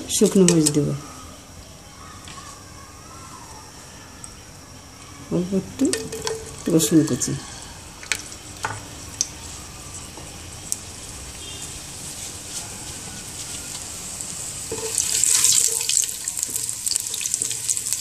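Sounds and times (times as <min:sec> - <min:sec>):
garlic and chillies frying in oil: 0:05.4 - 0:18.0
oil crackling and spitting: 0:14.2 - 0:18.0.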